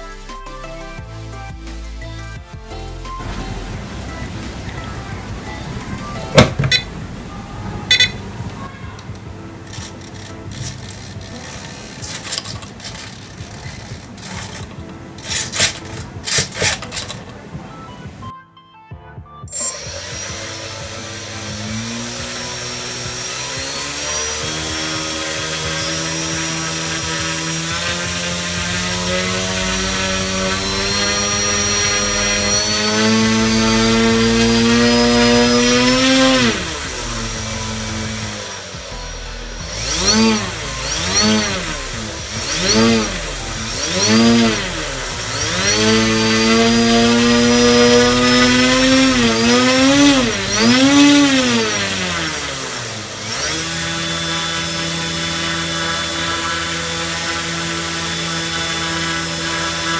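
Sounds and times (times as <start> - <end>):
electric motor and propeller whine: 9.7 - 14.7, 19.5 - 59.9.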